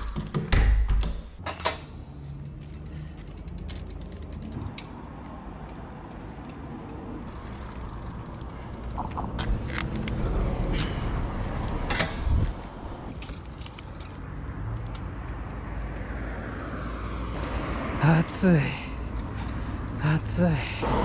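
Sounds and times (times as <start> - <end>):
bicycle parts rattling: 1.4 - 10.1, 13.1 - 15.1
bicycle freewheel ratchet ticking: 2.3 - 5.0, 7.3 - 9.0.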